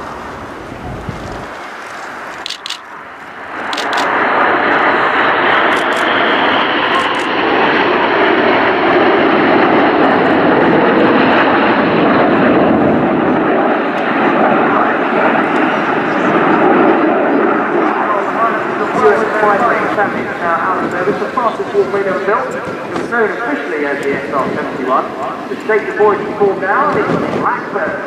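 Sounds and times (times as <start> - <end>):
jets flying past: 0.0 - 28.0.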